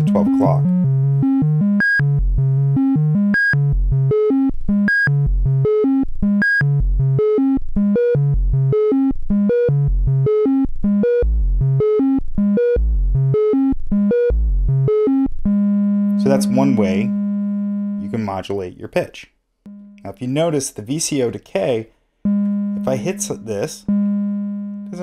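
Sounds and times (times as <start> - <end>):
short pitched synth blips: 16.1 - 18.2, 22.3 - 25.0.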